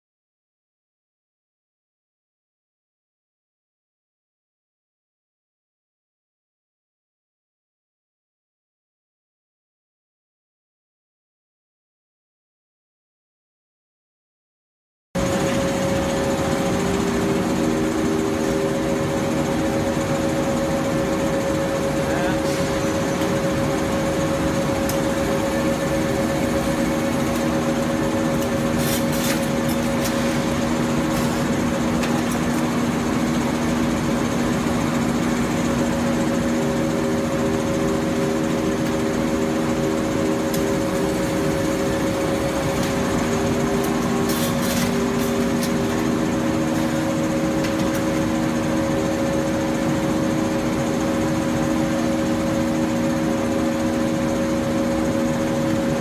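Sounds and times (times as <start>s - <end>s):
machine hum: 15.2s - 56.0s.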